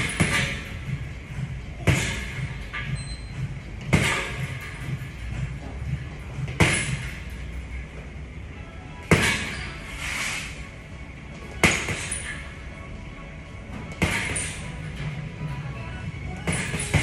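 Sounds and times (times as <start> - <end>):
punches smacking punching bag: 0.0 - 2.9, 3.8 - 5.0, 6.4 - 7.2, 9.0 - 9.6, 11.5 - 12.2, 13.9 - 14.7, 16.4 - 17.0.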